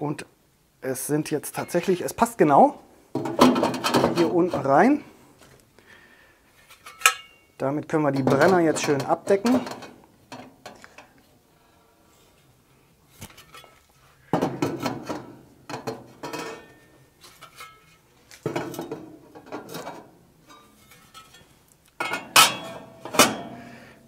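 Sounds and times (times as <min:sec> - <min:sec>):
metal bars clattering on steel: 0:18.5 - 0:23.6.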